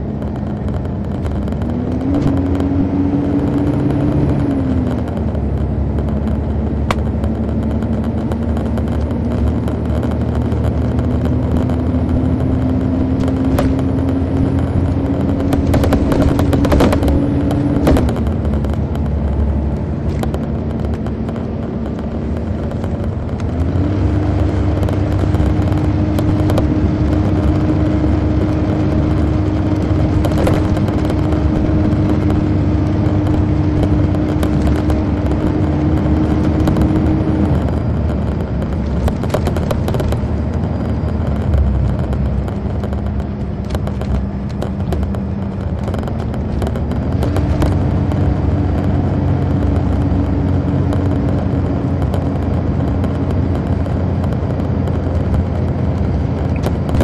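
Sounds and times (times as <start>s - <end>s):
clicks and rattles: 0.0s - 57.0s
diesel engine humming: 0.0s - 57.0s.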